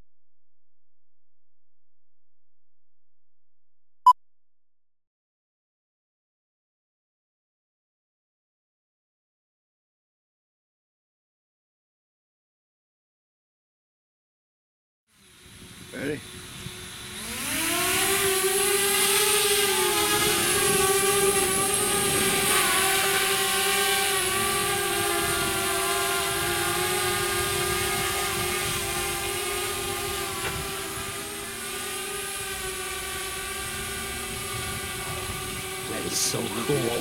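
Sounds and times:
drone propellers buzzing: 15.2 - 37.0.

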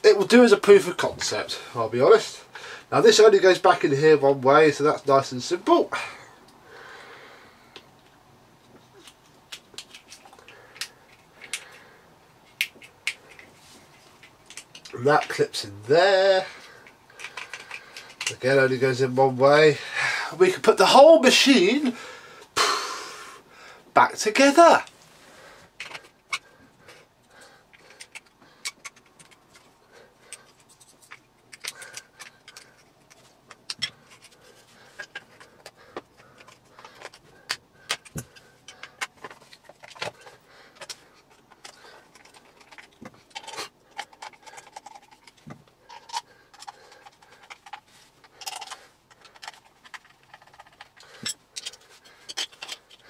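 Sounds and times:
small screws and plastic parts clattering: 7.7 - 19.3, 24.8 - 53.0
screwdriver turning: 17.2 - 18.4, 27.7 - 29.7, 30.3 - 53.0.

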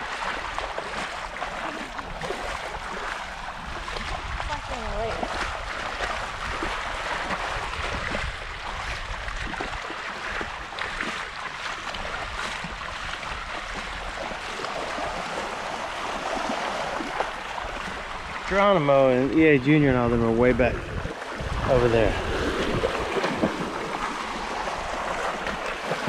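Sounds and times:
small waves sloshing: 0.0 - 26.0
wind rumbling on microphone: 0.0 - 26.0.

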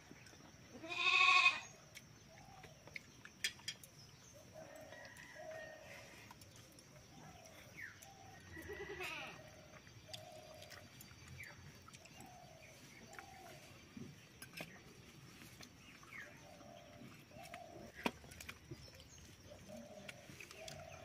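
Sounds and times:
farm animal bleating: 0.7 - 1.7, 8.6 - 9.4.

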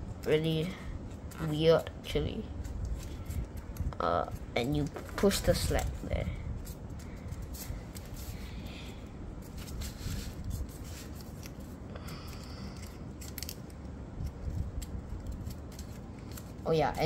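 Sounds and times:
paper being folded and creased: 9.4 - 17.0.

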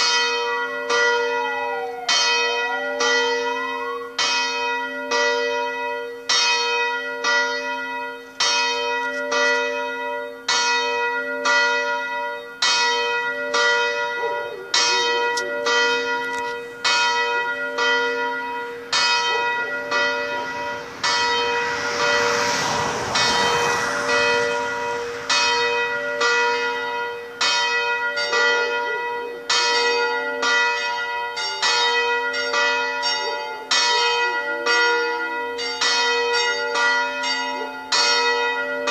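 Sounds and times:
church bells ringing: 0.0 - 38.9
rushing noise: 20.0 - 26.6.

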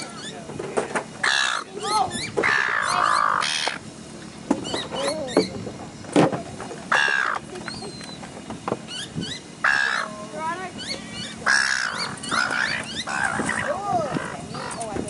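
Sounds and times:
gulls calling: 0.0 - 15.0
harsh gull squawks: 1.2 - 3.8, 6.9 - 7.4, 8.9 - 10.1, 10.8 - 14.8.

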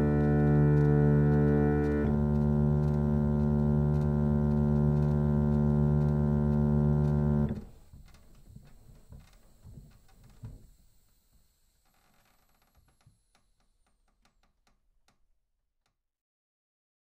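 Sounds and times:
harmonium sustained chord: 0.0 - 7.5.

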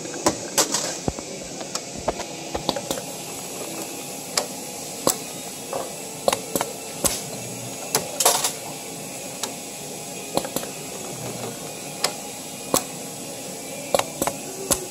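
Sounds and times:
steady hiss: 0.0 - 14.9
spring-forming machine clicking: 0.2 - 8.8.

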